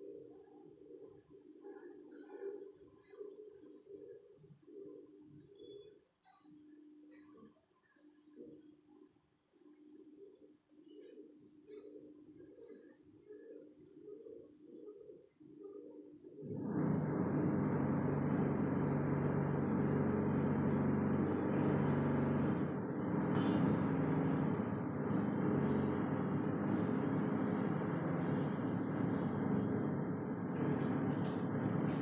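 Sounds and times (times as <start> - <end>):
machine humming: 16.4 - 32.0.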